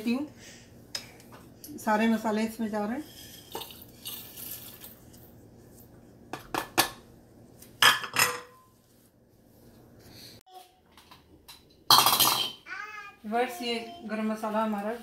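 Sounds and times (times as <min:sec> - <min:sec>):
plates and bowls clinking: 0:07.8 - 0:08.7, 0:11.9 - 0:12.6.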